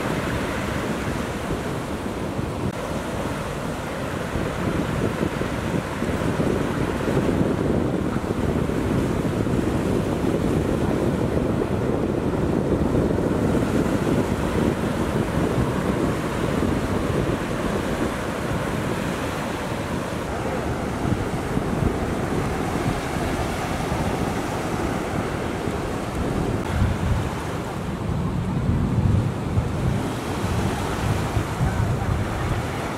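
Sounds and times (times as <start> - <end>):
ocean waves breaking: 0.0 - 32.9
wind buffeting microphone: 0.0 - 32.9.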